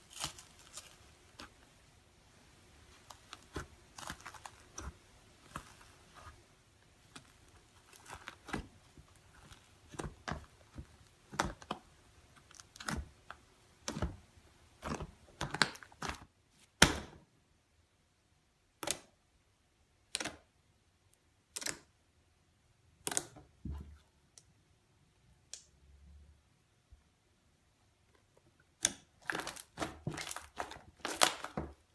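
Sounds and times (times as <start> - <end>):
slime popping and crackling: 0.0 - 1.6, 7.0 - 17.1, 28.7 - 31.9.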